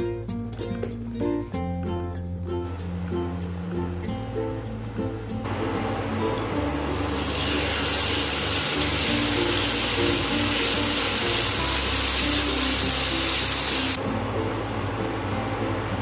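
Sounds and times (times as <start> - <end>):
light background music: 0.0 - 16.0
chicken sizzling in oil: 6.0 - 14.0.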